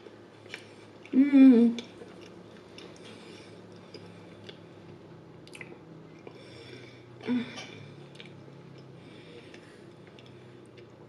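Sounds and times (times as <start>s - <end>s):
person chewing: 0.4s - 1.2s, 1.8s - 6.4s, 7.2s - 11.0s
wet mouth clicks and smacks: 5.4s - 6.4s.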